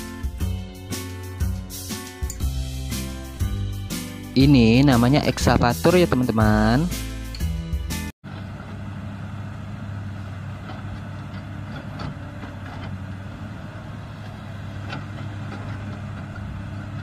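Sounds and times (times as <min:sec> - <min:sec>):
excavator diesel engine running: 0:08.3 - 0:17.0.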